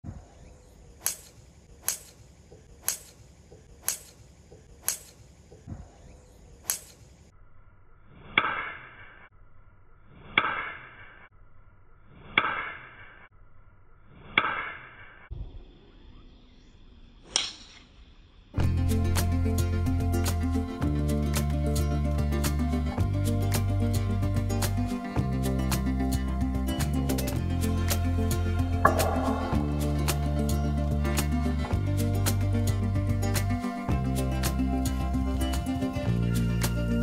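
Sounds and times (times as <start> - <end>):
golf driver striking ball: 28.8 - 30.7.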